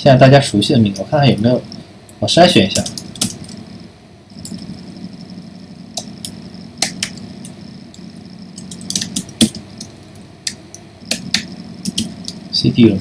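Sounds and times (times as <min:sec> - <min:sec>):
faint steady hum: 0:00.0 - 0:13.0
keyboard keys clicking: 0:02.8 - 0:03.6, 0:06.0 - 0:12.4.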